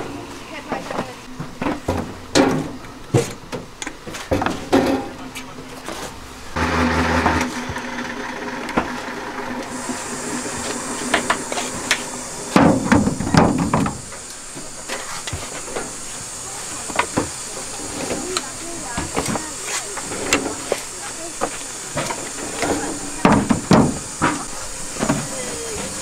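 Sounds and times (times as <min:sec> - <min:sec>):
steady high hiss: 0:00.0 - 0:26.0
knocking against wooden frames: 0:21.4 - 0:25.3.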